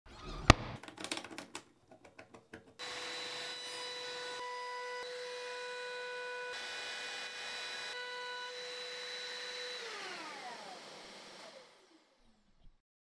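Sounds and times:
router high whine: 2.8 - 12.2.

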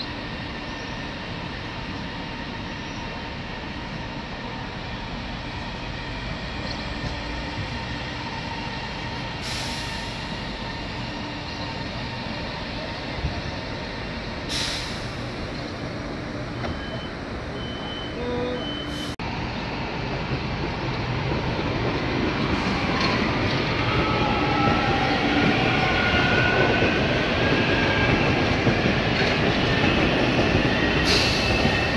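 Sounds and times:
compressed air hisses: 9.4 - 10.4, 14.5 - 15.3
short high beeps: 16.6 - 19.1.

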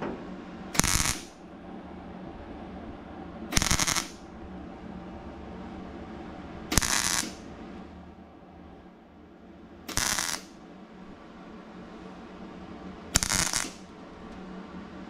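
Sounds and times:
steady low hum: 0.0 - 15.0
welding arc bursts: 0.8 - 1.4, 3.5 - 4.2, 6.7 - 7.4, 9.9 - 10.5, 13.2 - 13.9.

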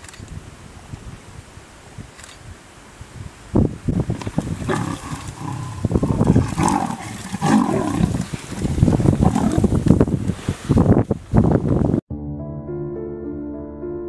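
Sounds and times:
big cats snarling and growling: 4.2 - 9.9.

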